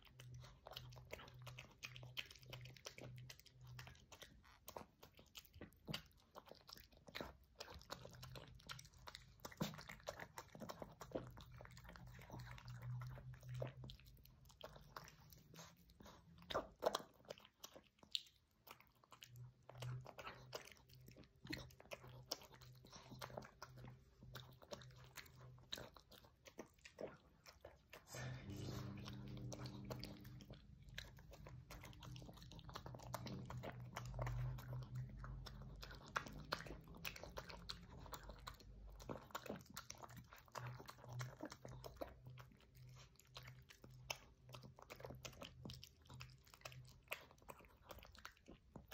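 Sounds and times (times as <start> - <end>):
dog chewing wet food: 0.0 - 48.9
teeth clicking on bowl: 0.0 - 48.9
low steady hum: 19.1 - 47.5.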